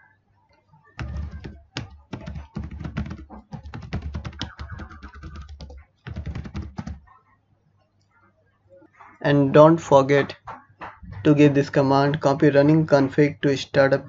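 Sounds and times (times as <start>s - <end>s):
fast typing on keyboard: 1.0s - 7.0s.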